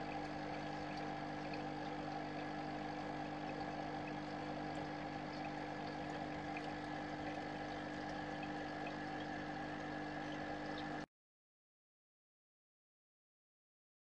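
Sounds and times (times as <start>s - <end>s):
aquarium pump humming: 0.0s - 11.1s
water trickling: 0.0s - 11.1s.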